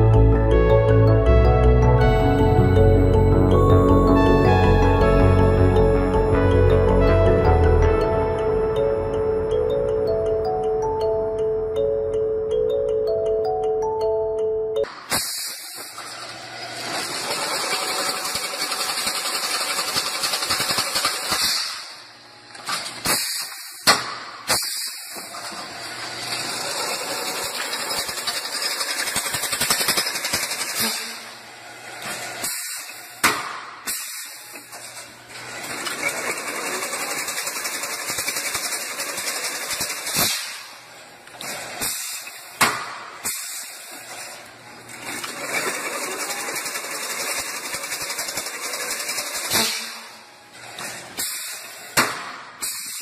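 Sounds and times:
weaving machine rattle and hiss: 0:15.1 - 0:53.0.

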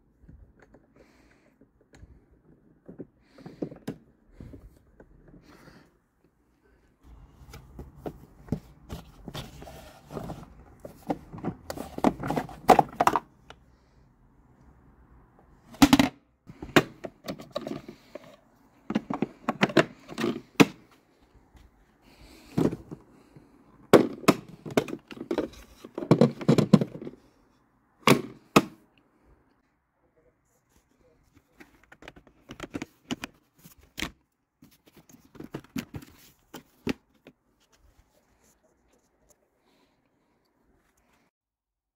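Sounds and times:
hard plastic parts clicking: 0:15.8 - 0:20.9.

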